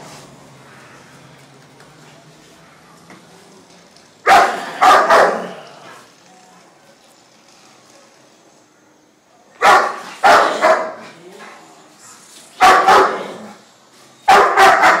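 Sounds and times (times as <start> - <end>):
large dog barking: 4.2 - 5.6, 9.6 - 11.2, 12.6 - 13.6, 14.3 - 15.0.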